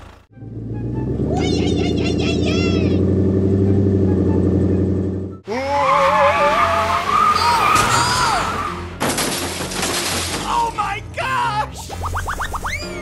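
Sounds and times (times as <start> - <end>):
tires screeching: 0.0 - 10.9.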